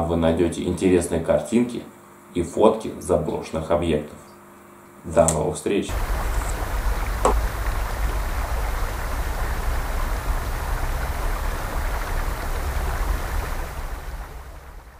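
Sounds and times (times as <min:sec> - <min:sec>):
creek rushing: 0:05.9 - 0:14.9
wind buffeting microphone: 0:05.9 - 0:14.9.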